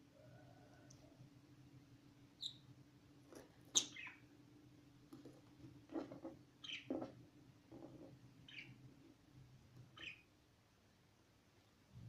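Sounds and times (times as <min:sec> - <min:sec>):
budgerigars chirping: 0:03.7 - 0:04.2, 0:08.5 - 0:08.8, 0:10.0 - 0:10.3.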